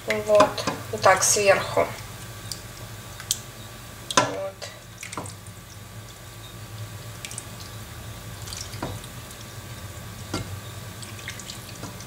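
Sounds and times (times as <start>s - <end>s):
steady low hum: 0.0s - 12.0s
sauce pouring and splashing: 4.8s - 12.0s.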